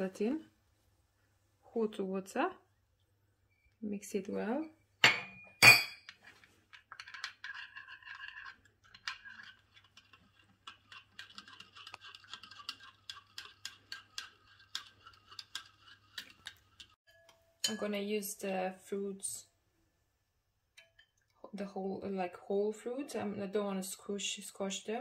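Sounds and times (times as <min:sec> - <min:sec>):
teaspoon clinking in glass bowl: 0:10.9 - 0:17.9.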